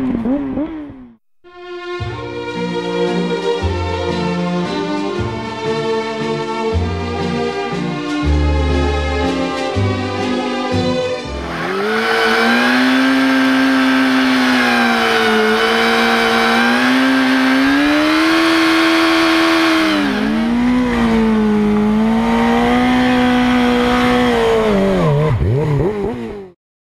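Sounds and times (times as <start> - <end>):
motorcycle engine at high revs: 0.0 - 1.2, 11.3 - 26.6.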